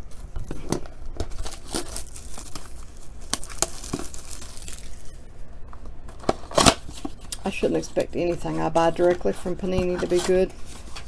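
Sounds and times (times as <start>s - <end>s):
plastic wrap crinkling: 1.2s - 5.2s.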